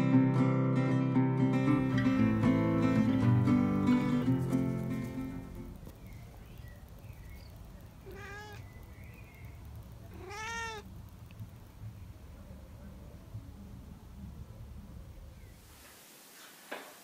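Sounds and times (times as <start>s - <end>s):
cat meowing: 8.0s - 8.8s, 10.0s - 10.9s.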